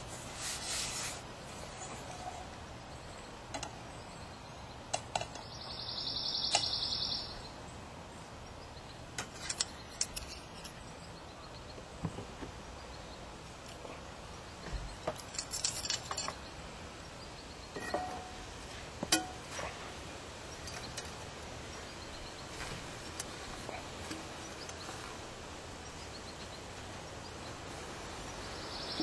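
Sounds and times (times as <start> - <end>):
utensils and dishes clinking: 17.8 - 18.5, 19.1 - 19.7.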